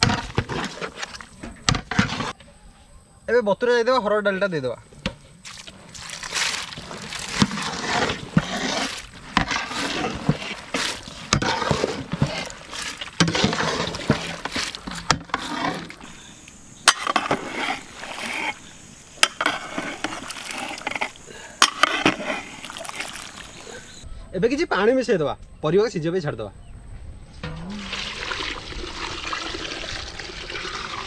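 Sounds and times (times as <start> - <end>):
wet sloshing and scraping: 0.0 - 2.4, 5.3 - 24.0.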